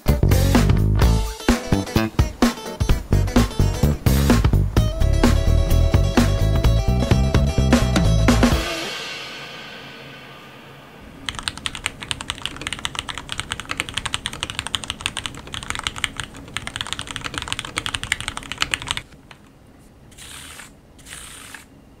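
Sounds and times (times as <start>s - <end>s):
fast typing on mechanical keyboard: 11.3s - 19.1s.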